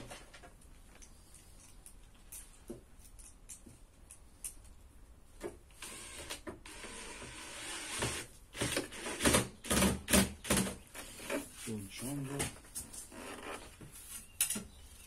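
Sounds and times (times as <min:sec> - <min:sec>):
scraping and rubbing: 0:10.9 - 0:14.4.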